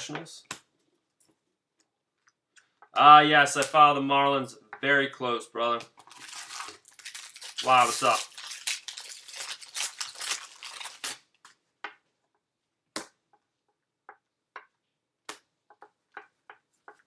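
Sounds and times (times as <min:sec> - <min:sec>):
foil wrapper crinkling and tearing: 0:06.0 - 0:11.4.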